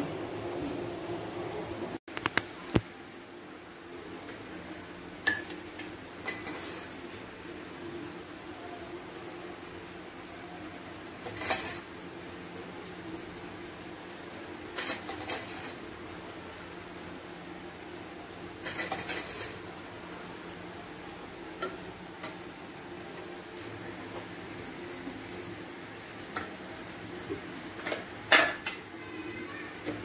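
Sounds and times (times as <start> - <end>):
metal utensils clinking in bowl: 6.2 - 7.0, 11.2 - 11.9, 14.8 - 15.8, 18.6 - 19.6.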